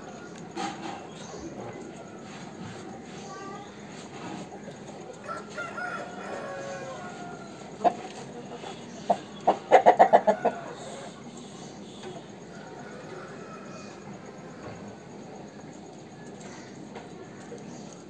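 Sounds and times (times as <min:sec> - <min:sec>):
rooster crowing: 0:05.2 - 0:07.9, 0:09.7 - 0:11.4, 0:12.4 - 0:14.8
rooster clucking: 0:05.2 - 0:11.3.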